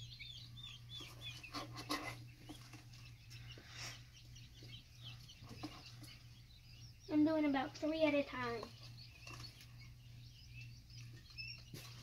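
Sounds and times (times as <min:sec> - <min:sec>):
chicks peeping: 0:00.0 - 0:12.0
low steady hum: 0:00.0 - 0:12.0
rustling wood shavings and cardboard: 0:11.0 - 0:12.0.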